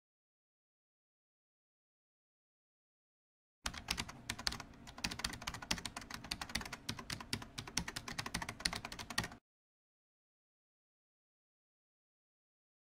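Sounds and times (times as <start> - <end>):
computer keyboard typing: 3.7 - 9.4.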